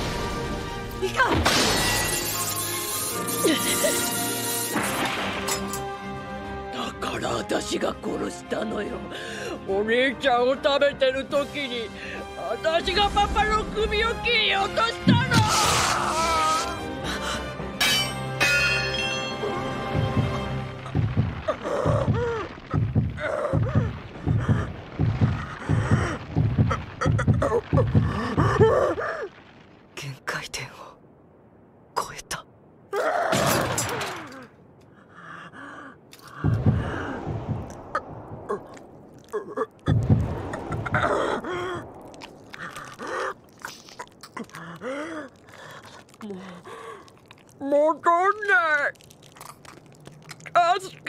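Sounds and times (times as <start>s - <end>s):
woman groaning and gasping: 21.5s - 24.7s, 25.6s - 29.3s, 40.8s - 47.3s.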